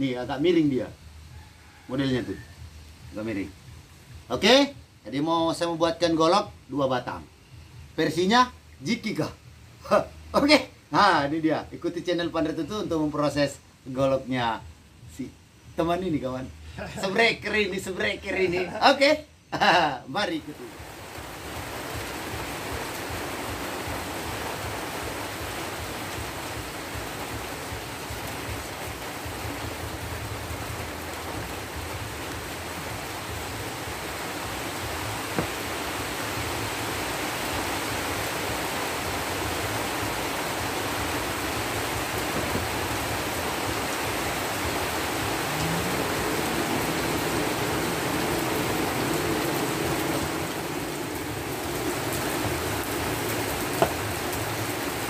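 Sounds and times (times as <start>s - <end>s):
forge blower hissing: 41.8s - 54.1s.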